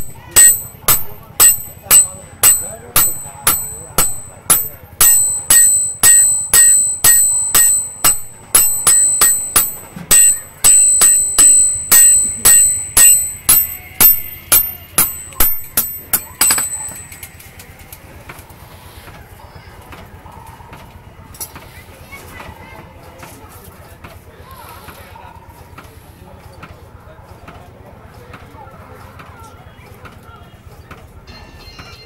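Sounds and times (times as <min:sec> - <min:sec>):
hammer striking metal on anvil: 0:00.0 - 0:17.3.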